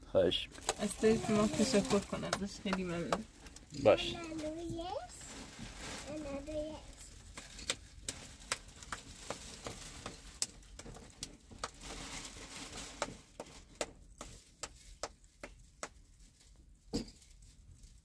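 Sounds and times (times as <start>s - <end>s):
plastic bags rustling: 0.5s - 14.2s.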